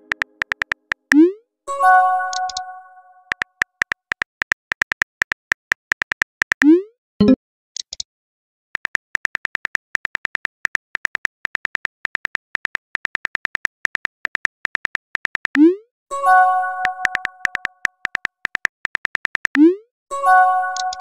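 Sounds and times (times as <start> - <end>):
phone keyboard clicks: 0.0 - 1.2, 2.3 - 2.6, 3.3 - 6.7, 8.8 - 15.6, 16.8 - 19.6, 20.8 - 21.0.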